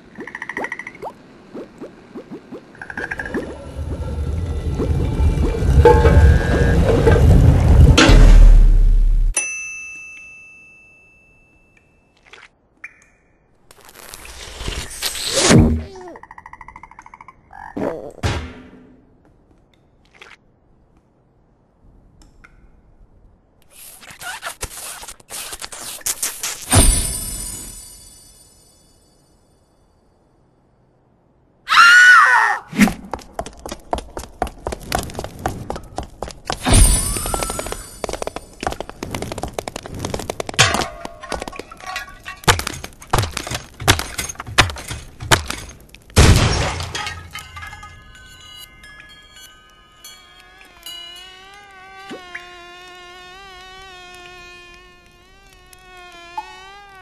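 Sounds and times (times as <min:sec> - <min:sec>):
cartoon crash: 0:14.2 - 0:16.2.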